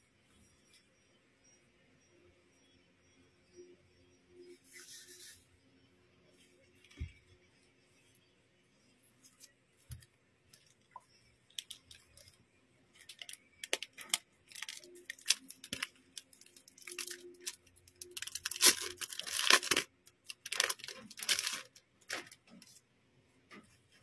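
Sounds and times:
plastic packaging crinkling: 11.5 - 22.8.

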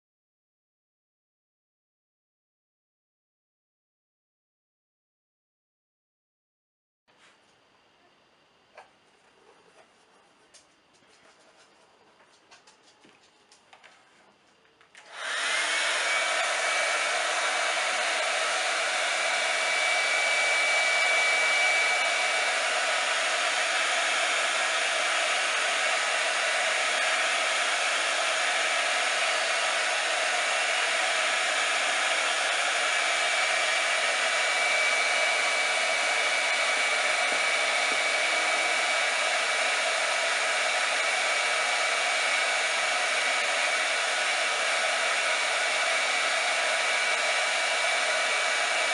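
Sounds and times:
hot-air blower running: 14.9 - 48.9.

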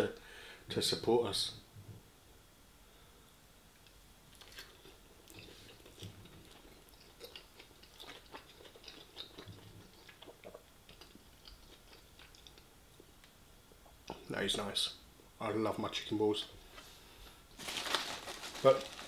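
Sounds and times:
close-miked chewing: 4.3 - 13.2.

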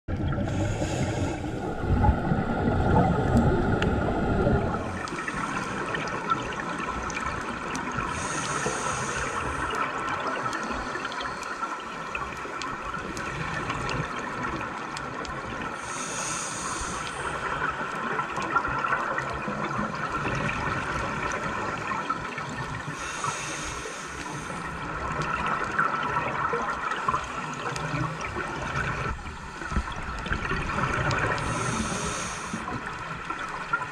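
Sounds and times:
exhaled bubbles rushing: 0.1 - 15.7, 24.7 - 33.9
high hiss of inhalation: 0.5 - 1.6, 8.1 - 9.7, 15.8 - 17.4, 23.0 - 24.6, 31.4 - 32.8
steady hiss: 8.0 - 12.6, 15.8 - 17.8, 22.8 - 25.0, 31.2 - 33.2.

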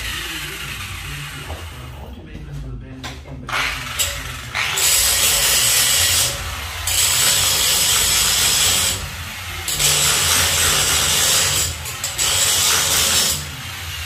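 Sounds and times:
angle grinder grinding metal: 3.5 - 14.0.

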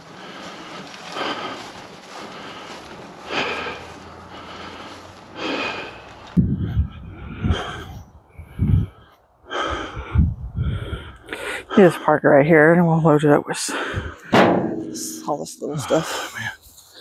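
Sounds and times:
person breathing heavily: 0.0 - 12.2, 13.6 - 17.0
low thumps and knocks: 14.2 - 15.5.

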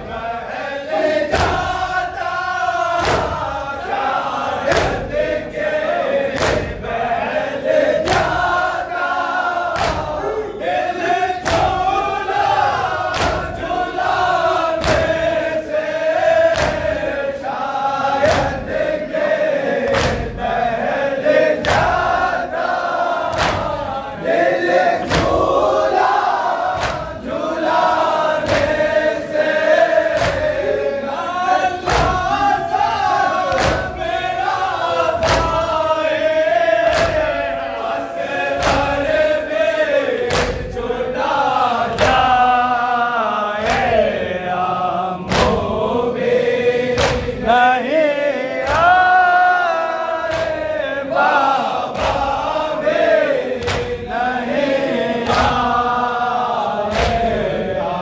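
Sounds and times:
men chanting in chorus: 0.0 - 58.0
person reciting: 0.0 - 58.0
chest beating slaps: 1.2 - 3.9, 4.6 - 5.7, 6.3 - 7.0, 8.0 - 8.8, 9.7 - 10.4, 11.4 - 15.5, 16.2 - 17.1, 18.2 - 18.8, 19.8 - 20.5, 21.6 - 24.0, 25.0 - 30.8, 31.8 - 34.3, 35.2 - 35.8, 36.8 - 37.5, 38.6 - 39.3, 40.2 - 40.8, 41.9 - 42.4, 45.3 - 45.8, 46.9 - 47.5, 48.6 - 49.1, 50.3 - 50.7, 51.8 - 52.5, 53.5 - 54.2, 55.2 - 55.8, 56.9 - 57.4.

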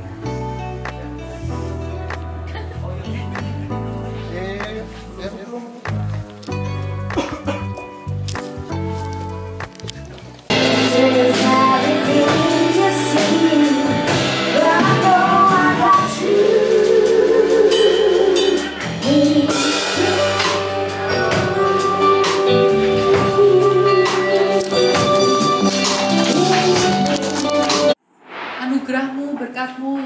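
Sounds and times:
drum kit: 0.0 - 30.0
people singing: 10.7 - 27.9.

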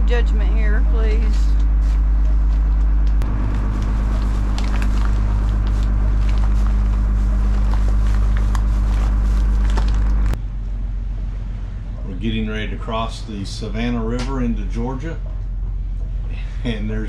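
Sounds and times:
boat engine droning: 0.0 - 17.0
plastic bag crinkling underfoot: 3.2 - 10.4.

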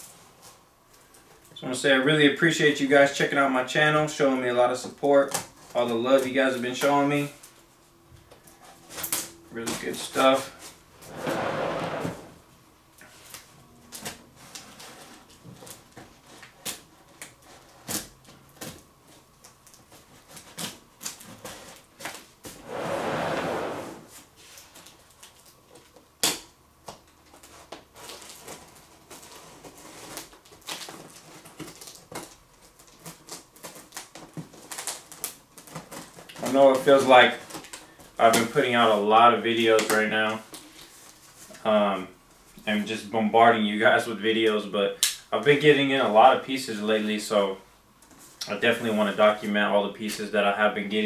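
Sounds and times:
cardboard scraping or tearing: 11.0 - 12.4, 22.5 - 24.3
cardboard clicks and rustles: 26.9 - 37.8.

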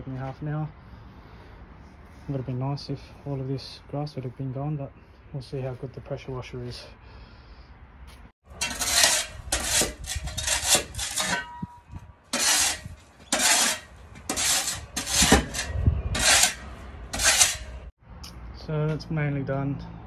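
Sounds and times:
metal shovel scraping concrete: 8.5 - 17.9.

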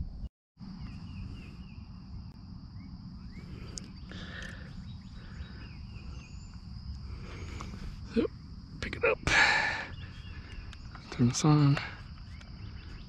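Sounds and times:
bird chirps: 0.0 - 13.0
insects droning: 0.0 - 13.0.

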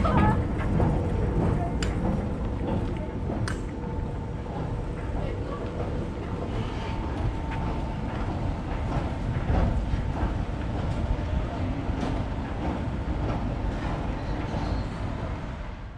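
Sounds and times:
low rumble of street noise: 0.0 - 15.9.

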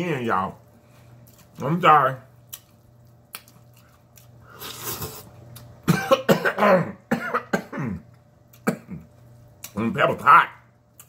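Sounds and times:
man coughing: 5.8 - 9.1.

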